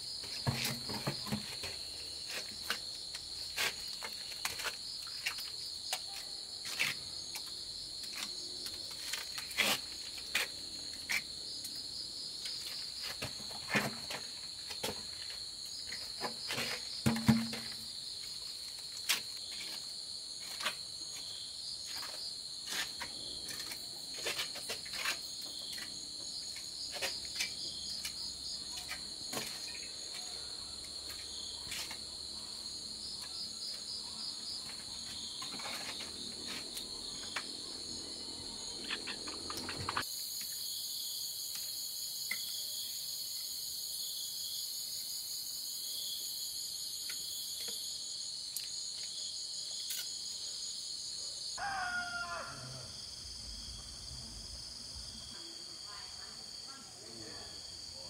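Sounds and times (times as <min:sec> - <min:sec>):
crickets trilling: 0:00.0 - 0:58.0
trowel and bucket knocks and scrapes: 0:00.2 - 0:07.0, 0:12.7 - 0:18.0, 0:28.8 - 0:29.9, 0:34.7 - 0:36.6.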